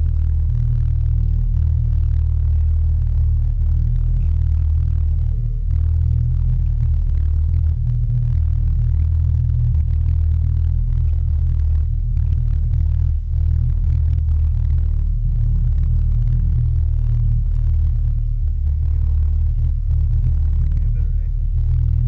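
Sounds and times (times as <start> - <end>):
underwater low rumble: 0.0 - 22.0.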